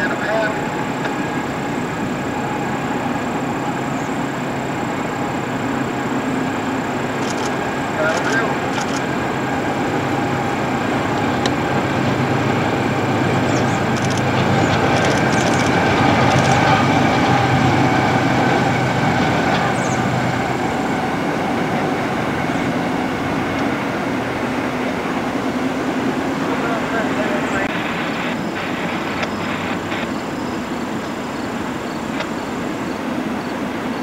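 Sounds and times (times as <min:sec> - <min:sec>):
train wheels rumbling on rail: 0:00.0 - 0:34.0
faint high clicks: 0:07.2 - 0:09.1.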